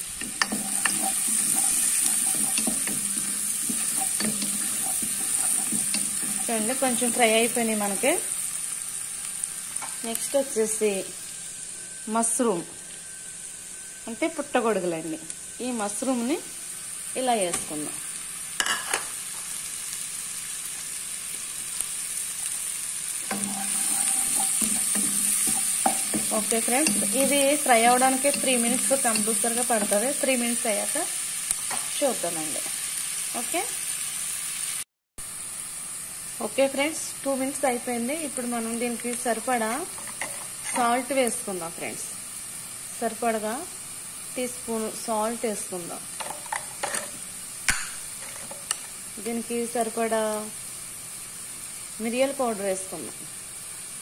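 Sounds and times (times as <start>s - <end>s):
onions sizzling in hot fat: 0.0s - 54.0s
wooden spatula scraping pan: 0.2s - 6.8s, 23.3s - 27.4s.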